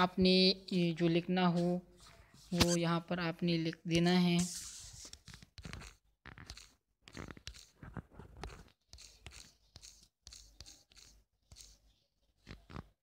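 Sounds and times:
fingers typing on touchscreen: 0:05.1 - 0:12.9.

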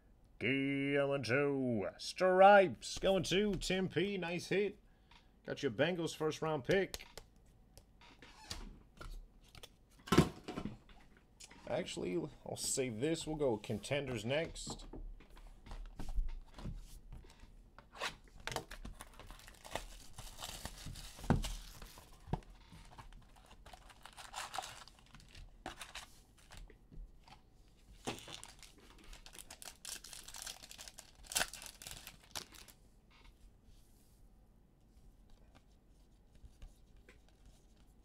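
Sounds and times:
foil wrappers ripped and crinkled: 0:19.0 - 0:22.0, 0:23.4 - 0:26.6, 0:28.1 - 0:32.7.

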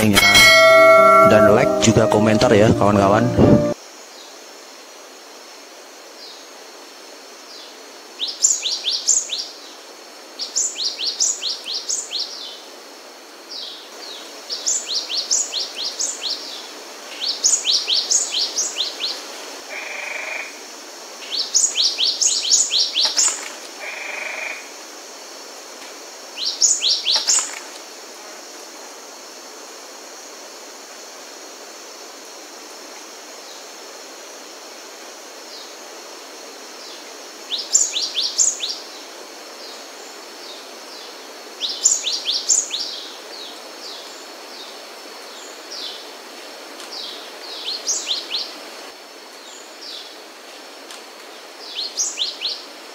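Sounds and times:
bird singing high notes: 0:00.0 - 0:03.8
background hiss: 0:00.0 - 0:52.9.

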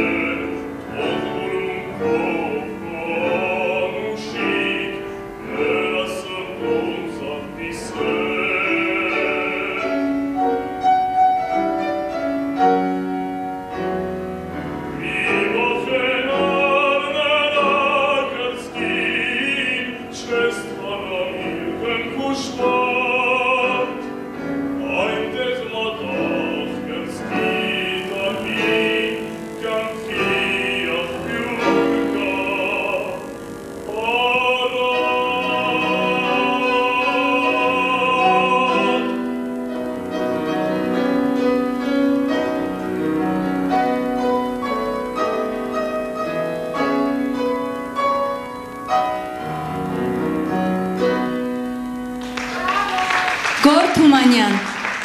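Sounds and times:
man singing operatically: 0:00.0 - 0:10.8, 0:15.0 - 0:41.0
grand piano: 0:00.0 - 0:55.0.

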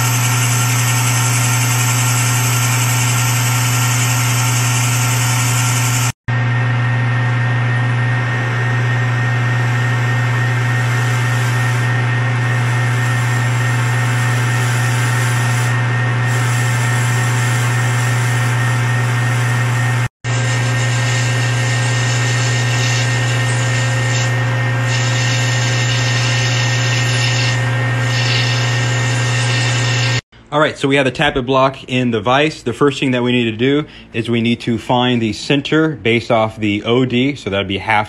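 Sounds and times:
lathe tool cutting metal: 0:00.0 - 0:06.2, 0:07.8 - 0:30.2
lathe motor hum: 0:00.0 - 0:30.2.

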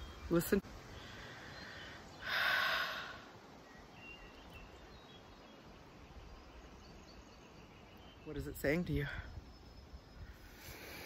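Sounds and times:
forest ambience: 0:00.0 - 0:11.0
breathy exhale: 0:01.0 - 0:03.2, 0:10.3 - 0:11.0.

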